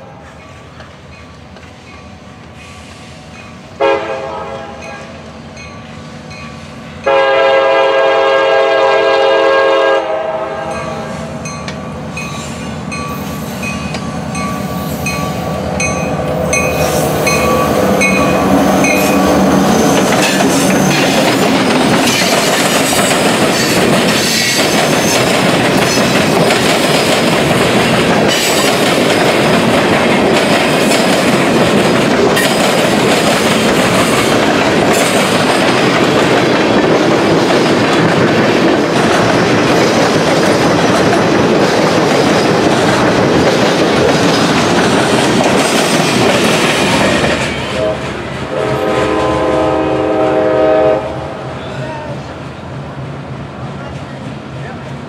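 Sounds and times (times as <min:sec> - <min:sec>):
locomotive rumbling past: 0:00.0 - 0:55.0
train wheels rolling on rails: 0:00.0 - 0:55.0
locomotive horn blast: 0:03.8 - 0:05.1, 0:07.1 - 0:11.2, 0:47.7 - 0:51.5
train car clanks: 0:10.7 - 0:48.7.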